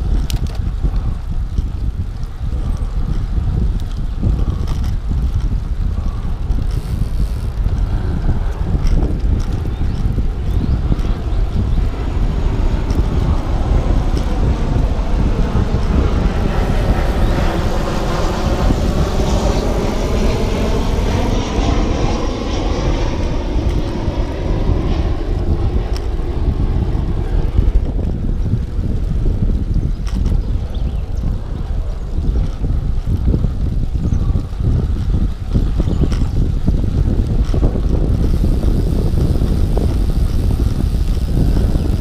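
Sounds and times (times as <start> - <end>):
wind on microphone: 0.0 - 42.0
passing engine drone: 10.3 - 27.8.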